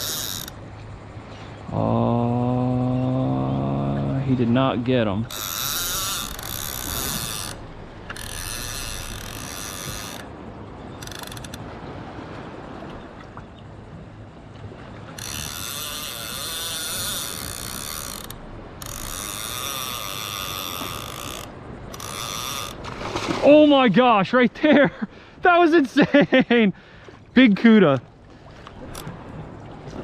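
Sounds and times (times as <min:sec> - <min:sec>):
fishing reel ratcheting: 0:00.0 - 0:00.6, 0:05.3 - 0:10.3, 0:11.0 - 0:11.6, 0:15.2 - 0:22.8.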